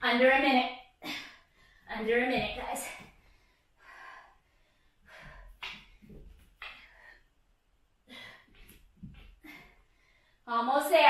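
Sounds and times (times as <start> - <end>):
woman breathing hard: 2.9 - 10.4.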